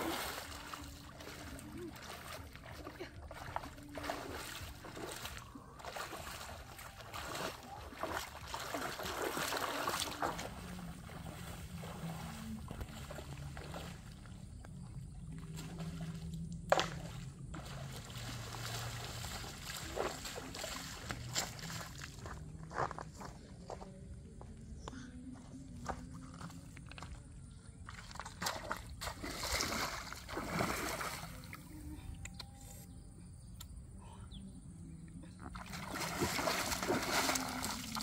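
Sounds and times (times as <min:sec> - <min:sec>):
feet splashing through stream: 0:00.0 - 0:23.0, 0:27.8 - 0:31.8, 0:35.5 - 0:38.0.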